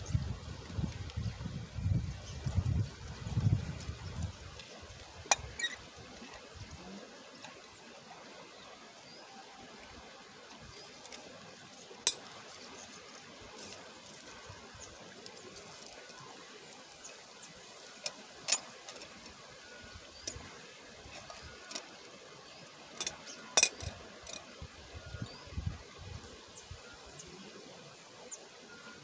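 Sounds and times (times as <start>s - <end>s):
faint steady hiss: 0.0s - 29.0s
metal coffee pots clinking: 12.0s - 12.4s, 18.0s - 19.4s, 23.0s - 24.5s.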